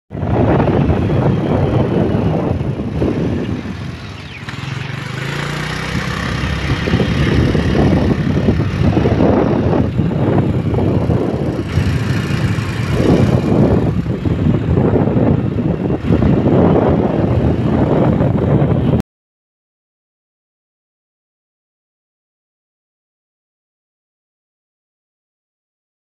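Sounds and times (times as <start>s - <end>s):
motorcycle engine and road noise: 0.1s - 19.0s
wind buffeting microphone: 0.1s - 19.0s.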